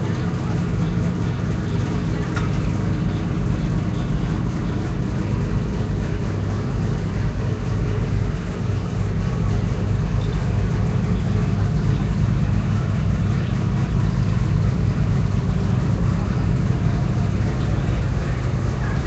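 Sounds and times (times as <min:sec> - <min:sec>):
engine running low rumble: 0:00.0 - 0:19.0.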